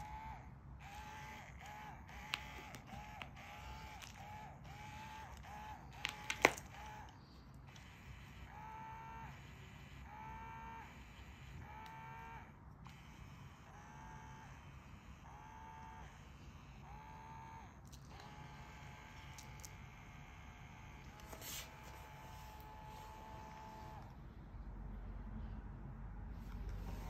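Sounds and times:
toy motor whining: 0.0s - 24.1s.

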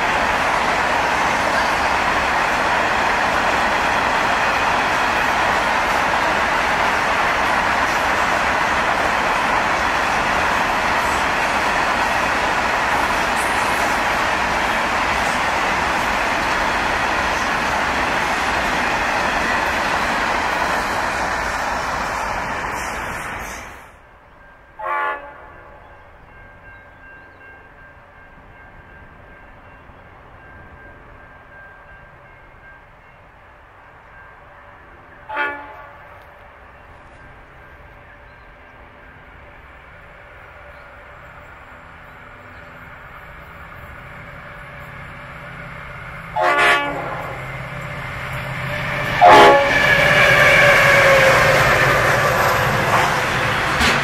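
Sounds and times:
train horn blasts: 24.8s - 25.9s, 35.3s - 36.3s, 46.3s - 47.5s, 48.8s - 54.0s
locomotive engine drone: 36.1s - 54.0s.

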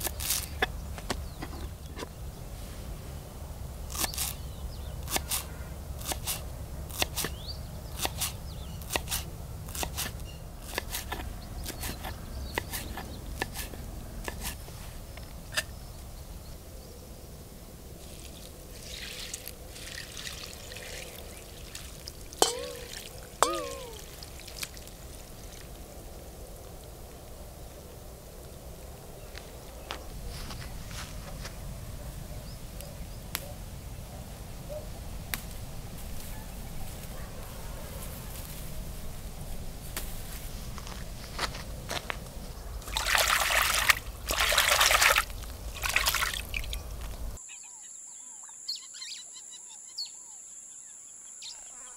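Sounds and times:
sharp metallic clanks ringing: 22.4s - 24.0s.

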